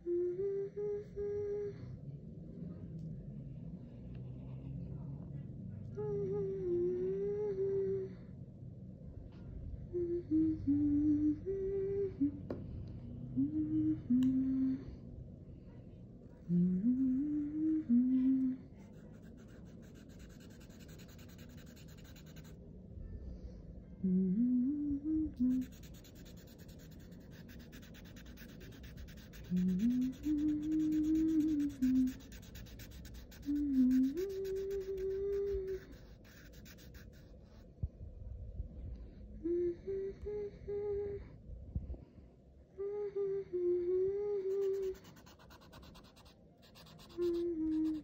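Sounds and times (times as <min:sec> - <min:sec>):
person humming: 0:13.4 - 0:15.0, 0:16.5 - 0:18.7, 0:24.0 - 0:36.6, 0:39.4 - 0:41.3, 0:42.8 - 0:48.0
marker scratching on paper: 0:18.9 - 0:22.6, 0:25.6 - 0:37.3, 0:44.6 - 0:48.0.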